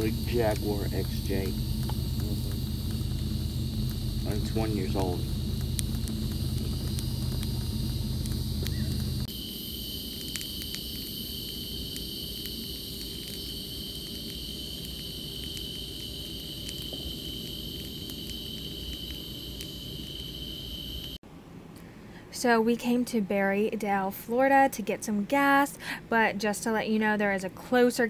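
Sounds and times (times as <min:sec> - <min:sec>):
low steady hum: 0:00.0 - 0:09.3
campfire popping and crackling: 0:00.0 - 0:21.2
night insects trilling: 0:00.0 - 0:21.2.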